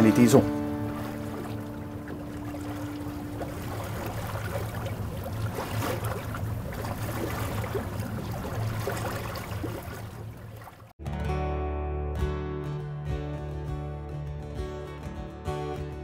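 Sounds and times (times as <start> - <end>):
water churning and splashing: 0.0 - 11.0
low steady hum: 0.4 - 10.8.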